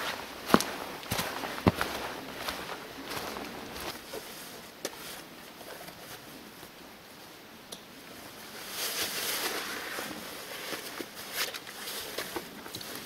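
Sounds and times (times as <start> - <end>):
jacket and backpack straps rustling: 0.0 - 4.1
faint outdoor hush: 0.0 - 13.0.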